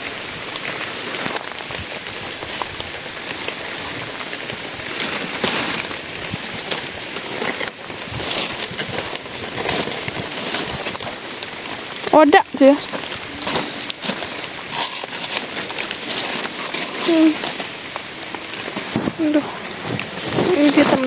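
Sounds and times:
rain falling on leaves: 0.0 - 21.0
short crackles: 0.0 - 21.0.

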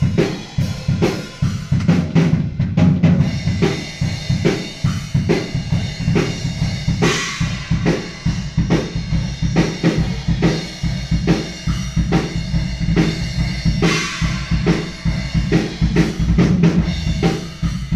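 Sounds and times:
drum kit steady beat: 0.0 - 17.9
cymbal crash: 3.4 - 11.2, 13.1 - 17.9.

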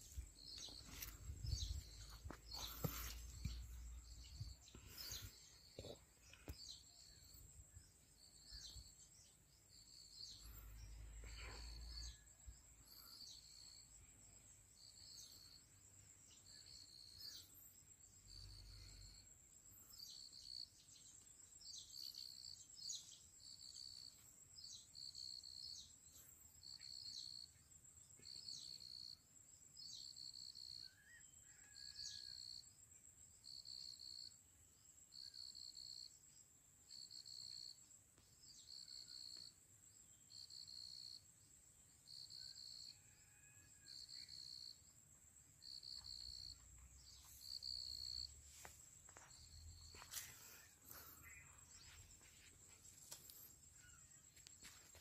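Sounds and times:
insect chirping: 0.0 - 55.0
thin high-pitched insect trill: 42.1 - 44.8.

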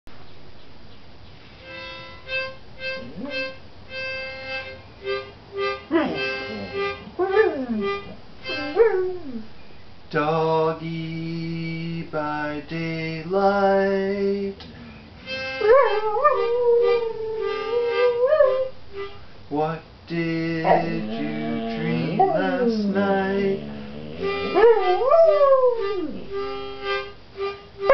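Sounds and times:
instrument playing notes and chords: 1.6 - 9.1, 20.7 - 27.9
dog howling and whining: 5.9 - 9.5, 15.6 - 18.7, 20.6 - 26.3.

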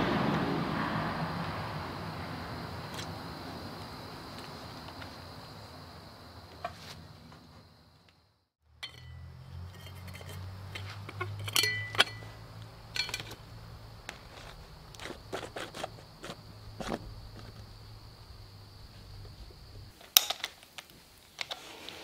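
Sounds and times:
high insect drone: 0.1 - 8.4, 9.0 - 20.0
metallic clinks and taps: 8.8 - 13.4.

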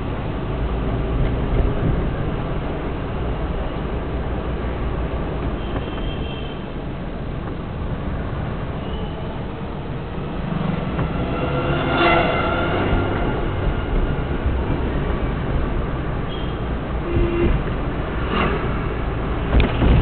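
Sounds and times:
vehicle engine and road noise: 0.0 - 20.0
car horn blast: 10.8 - 14.6, 16.3 - 17.6.

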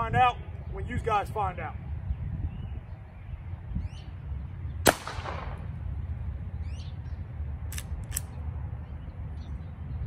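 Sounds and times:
wind rumble on microphone: 0.0 - 10.0
gunshot crack: 4.8 - 5.7.

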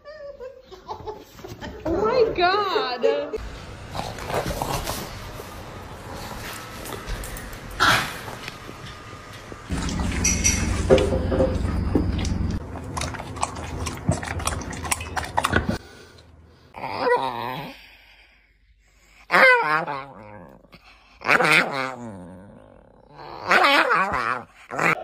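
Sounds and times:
dog growling in its sleep: 16.8 - 18.0, 19.7 - 25.0.

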